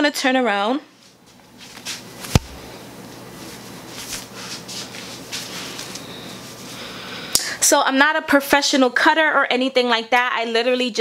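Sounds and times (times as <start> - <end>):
soft rustling of hair: 0.9 - 6.8
sharp knock: 2.3 - 2.6.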